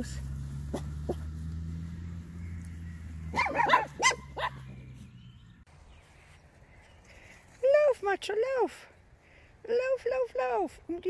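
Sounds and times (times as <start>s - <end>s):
small dog yapping: 3.3s - 4.6s.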